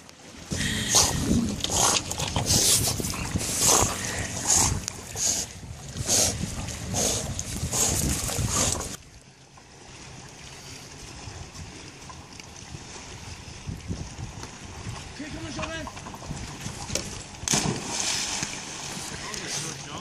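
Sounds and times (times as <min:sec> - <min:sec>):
lapping water: 0:00.3 - 0:20.0
wind hiss: 0:00.5 - 0:09.0
dog paws splashing water: 0:11.6 - 0:20.0.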